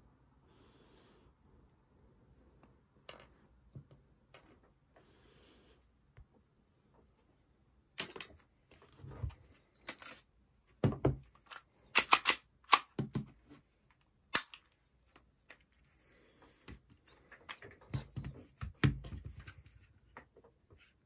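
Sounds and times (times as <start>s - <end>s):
pistol clicks and knocks: 12.0s - 13.2s.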